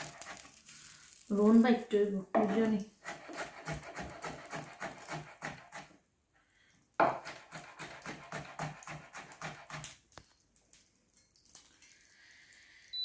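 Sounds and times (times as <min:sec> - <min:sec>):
cleaver chopping on plastic board: 0:03.1 - 0:05.9, 0:07.0 - 0:09.8.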